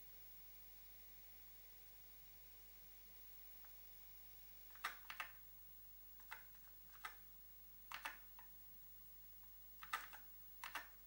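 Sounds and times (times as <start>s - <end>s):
keyboard keys clicking: 4.7s - 5.4s, 6.2s - 7.2s, 7.9s - 8.5s, 9.8s - 11.0s.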